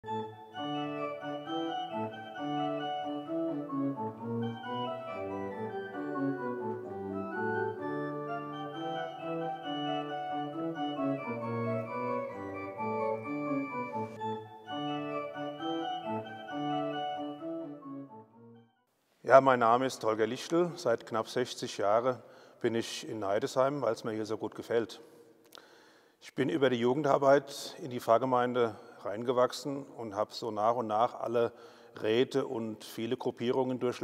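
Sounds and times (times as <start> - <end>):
organ playing held chords: 0.0 - 18.8.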